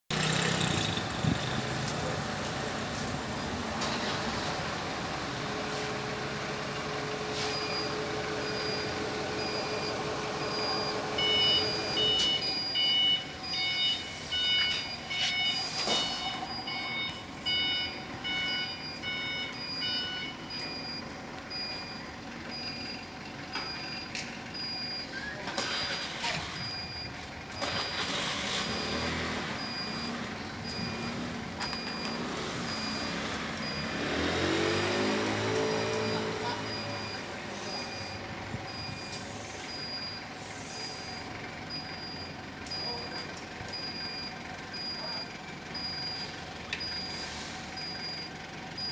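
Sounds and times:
forklift engines running: 0:00.1 - 0:48.9
forklift warning beeper: 0:05.7 - 0:48.9
loud multi-pitch beeper: 0:07.4 - 0:22.0.

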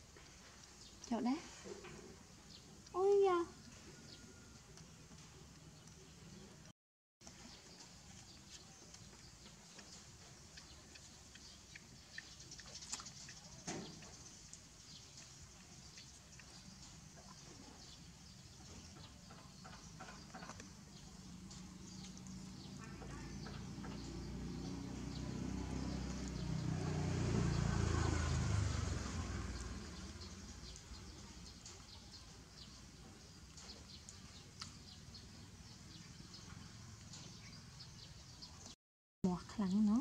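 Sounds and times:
passing vehicle engine rumble: 0:16.5 - 0:33.7.

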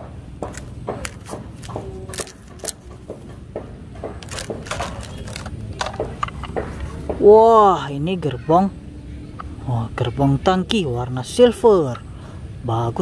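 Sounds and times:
plastic toy track pieces clattering: 0:04.2 - 0:06.6.

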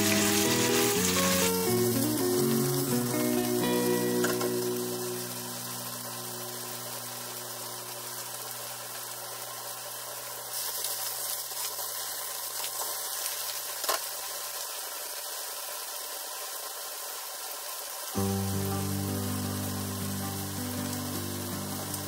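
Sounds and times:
background music: 0:00.0 - 0:07.0, 0:18.2 - 0:22.0
food sizzling in a pan: 0:00.0 - 0:22.0.

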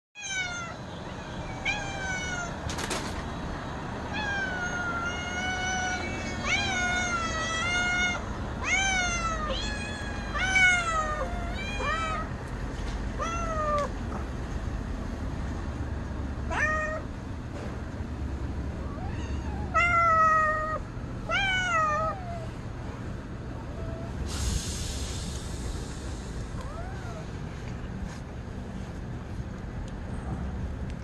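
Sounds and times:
cats meowing: 0:00.2 - 0:02.8, 0:04.0 - 0:12.4, 0:13.1 - 0:14.0, 0:16.5 - 0:17.2, 0:18.8 - 0:22.5, 0:26.6 - 0:27.3.

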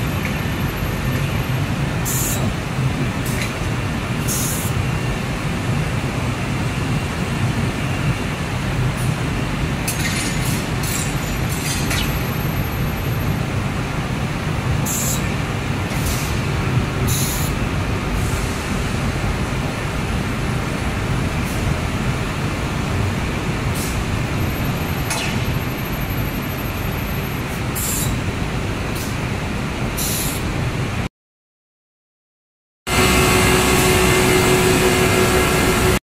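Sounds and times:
glass cutting machinery: 0:32.9 - 0:36.0.

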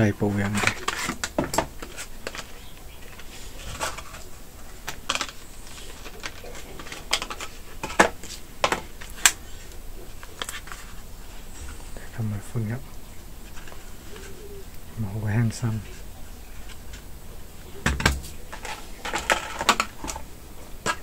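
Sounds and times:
plastic packaging clicks and crackles: 0:00.4 - 0:11.0, 0:17.8 - 0:21.0.

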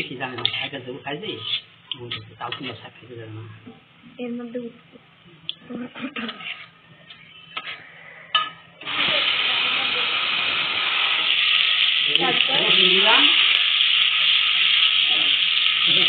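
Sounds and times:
metal spatula stirring: 0:00.0 - 0:02.9, 0:06.2 - 0:07.8
garlic sizzling in hot oil: 0:00.0 - 0:03.2, 0:08.8 - 0:16.0.

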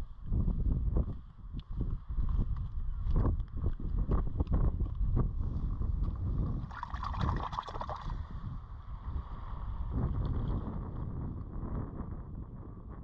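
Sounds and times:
wind rumbling on microphone: 0:00.0 - 0:13.0
hand splashing in rock pool: 0:06.7 - 0:08.2
seawater sloshing on rocks: 0:06.7 - 0:08.2.

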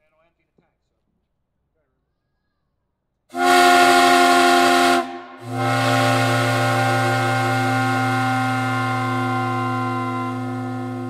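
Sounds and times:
steam whistle chord: 0:03.3 - 0:11.0.

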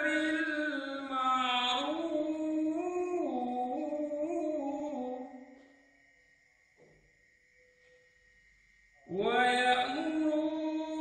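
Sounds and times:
man chanting melodically: 0:00.0 - 0:05.4, 0:09.1 - 0:11.0.

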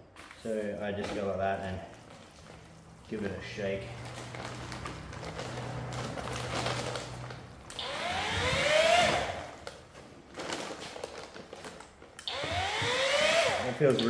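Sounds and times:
paddle mixer humming and whining: 0:07.8 - 0:09.5, 0:12.3 - 0:14.0.

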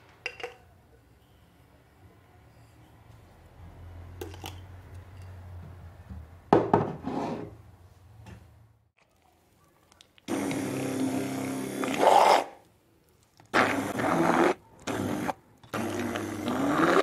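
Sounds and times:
kitchenware knocks and scrapes: 0:06.5 - 0:07.6.

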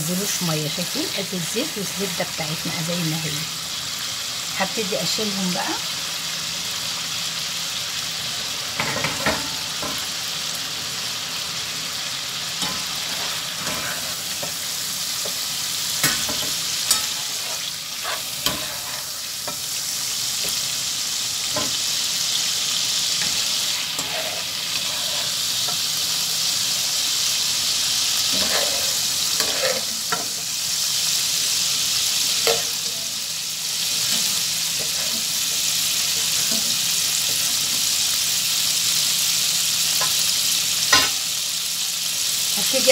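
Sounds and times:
chicken sizzling in hot oil: 0:00.0 - 0:42.9
utensils scraping a pan: 0:12.6 - 0:15.4, 0:16.0 - 0:19.7, 0:23.2 - 0:25.9, 0:28.3 - 0:30.4.

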